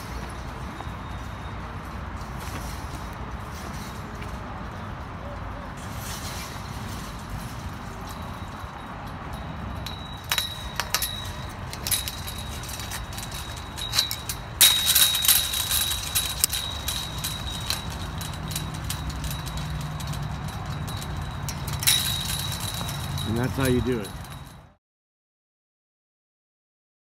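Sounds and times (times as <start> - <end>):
thin high metal ring: 7.9 - 24.7.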